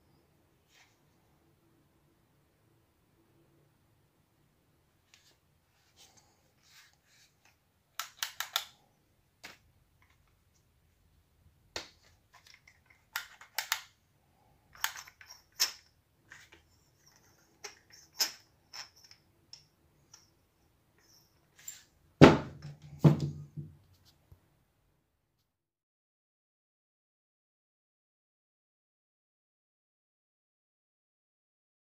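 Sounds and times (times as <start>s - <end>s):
plastic drills clicking and rattling: 14.7s - 16.6s
drills thudding on table: 22.2s - 23.6s.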